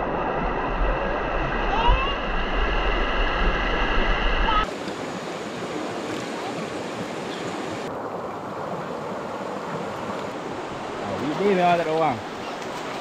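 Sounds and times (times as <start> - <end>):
river rushing over stones: 4.1 - 13.0.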